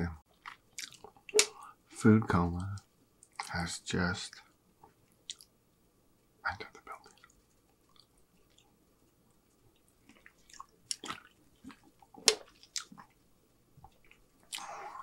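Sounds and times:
person gulping drink: 13.8 - 15.0.

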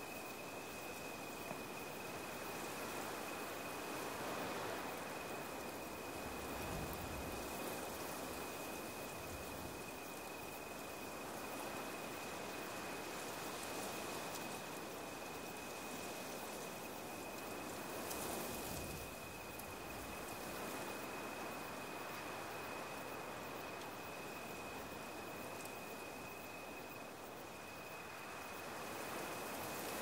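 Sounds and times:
faint high whine: 0.0 - 30.0
rain-like rushing noise: 2.3 - 9.8.

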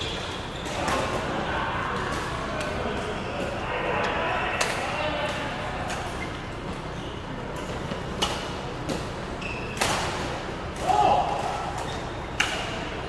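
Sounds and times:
sports hall background noise: 0.0 - 13.0
racket hitting shuttlecock: 8.1 - 13.0.

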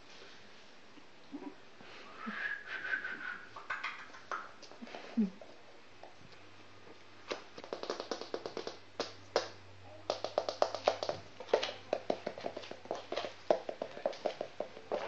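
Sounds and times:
puppy claws clicking on floor: 7.3 - 15.0.

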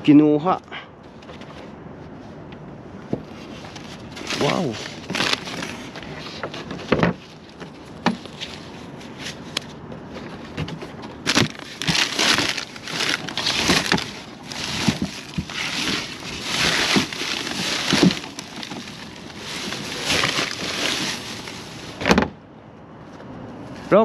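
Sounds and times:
plastic bag rustling: 3.2 - 22.2
vegetable scraps crunching: 11.2 - 22.0.

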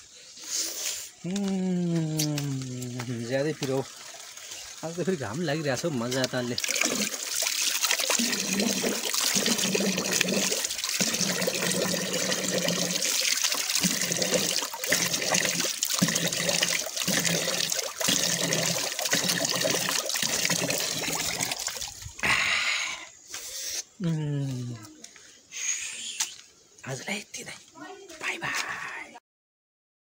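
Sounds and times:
man rinsing mouth and face: 0.4 - 22.6
running water splashing: 1.4 - 22.2.

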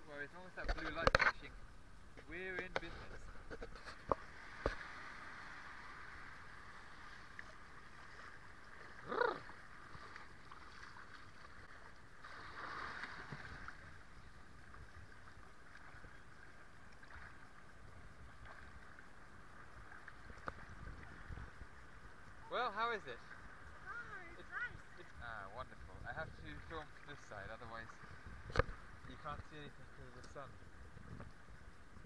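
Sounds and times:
small waves lapping: 0.1 - 31.9
bark-like call: 9.0 - 9.5.

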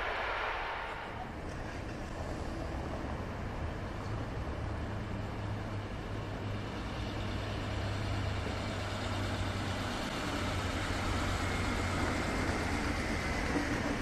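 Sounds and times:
faint rising whine: 0.0 - 2.5
diesel train engine drone: 0.0 - 14.0
train rolling noise: 0.0 - 14.0.

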